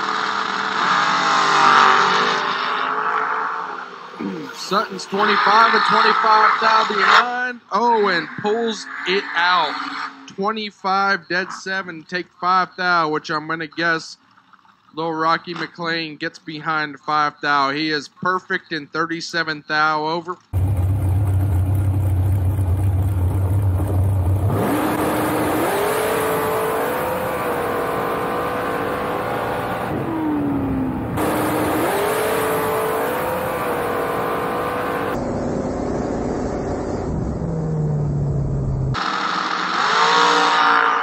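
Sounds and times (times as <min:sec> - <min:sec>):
dragster engine revving: 0:20.5 - 0:41.0.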